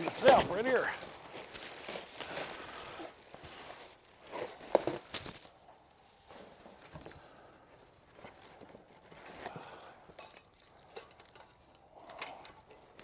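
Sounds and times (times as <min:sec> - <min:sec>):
packing foam and paper rustling: 0:00.0 - 0:09.8.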